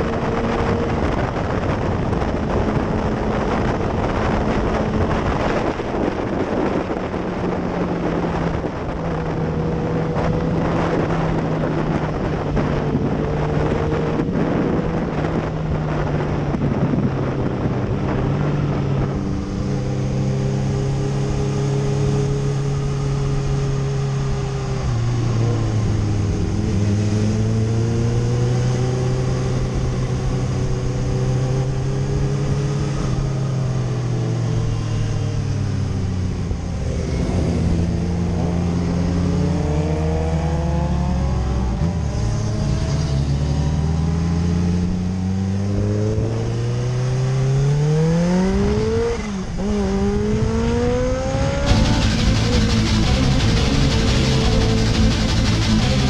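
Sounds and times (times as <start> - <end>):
wind rush on microphone: 0.0 - 55.4
motorcycle engine running: 48.5 - 56.0.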